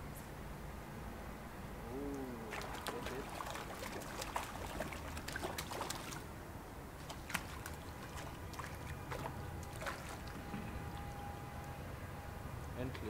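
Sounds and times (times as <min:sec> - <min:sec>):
fish splashing at water surface: 0:02.4 - 0:06.3, 0:07.0 - 0:11.1.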